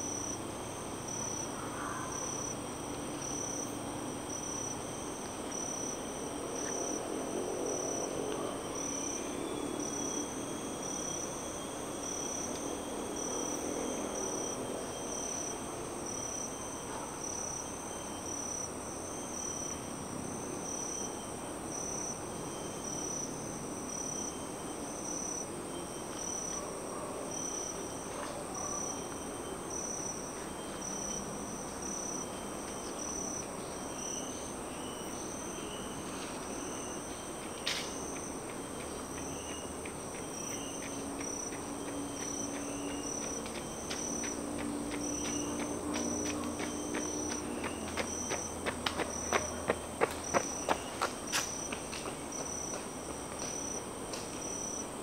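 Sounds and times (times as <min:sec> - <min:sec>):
insects droning and pulsing: 0:00.0 - 0:55.0
highway traffic rumble: 0:31.2 - 0:55.0
fast insect ticking: 0:37.4 - 0:52.8.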